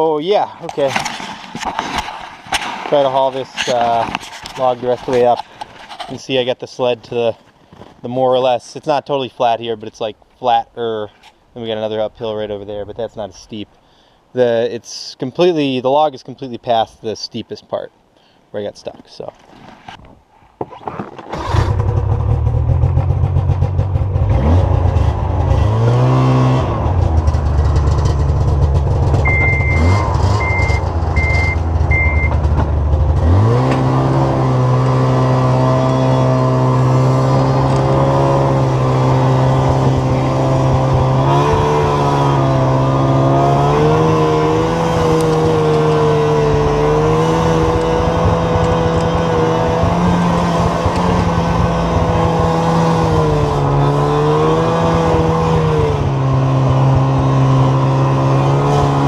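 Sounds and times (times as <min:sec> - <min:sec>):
snowmobile engine running hard: 0:28.5 - 0:59.0
short high beeps: 0:29.3 - 0:32.4.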